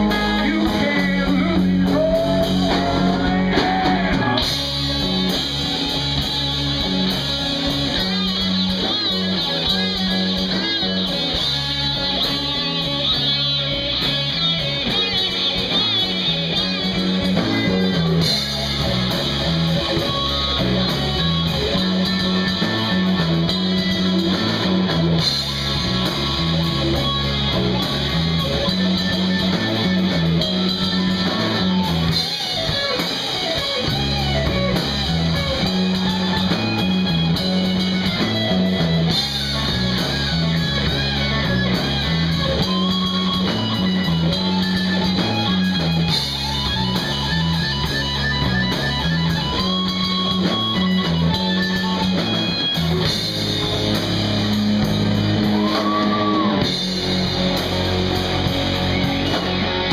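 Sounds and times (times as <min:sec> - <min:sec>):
drum kit: 0:00.0 - 0:59.9
electric guitar: 0:00.0 - 0:59.9.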